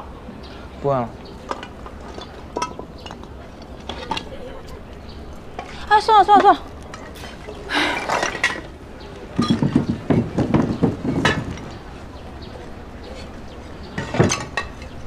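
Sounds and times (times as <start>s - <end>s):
shards clinking and scraping on concrete: 1.4s - 15.0s
clatter of shards: 1.5s - 4.4s, 6.4s - 8.8s, 9.4s - 11.8s, 13.1s - 15.0s.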